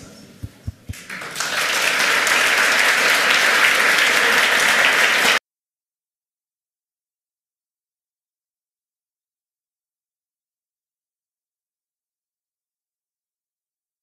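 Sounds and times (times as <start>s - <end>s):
audience applause: 0.9s - 5.4s.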